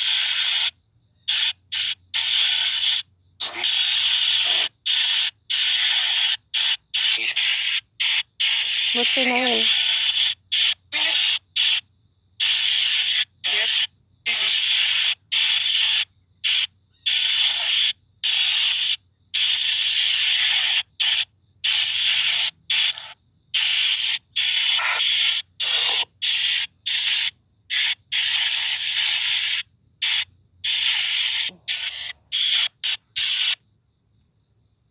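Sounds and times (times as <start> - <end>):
white-noise static bursts: 0.0 - 0.7, 12.4 - 16.0, 16.6 - 33.6.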